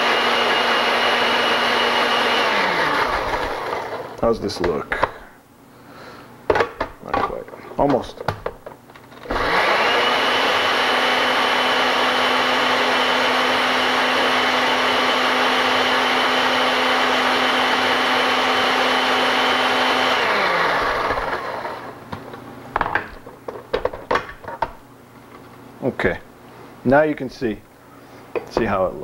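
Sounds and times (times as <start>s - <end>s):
blender motor whine: 0.0s - 4.2s, 9.1s - 22.0s.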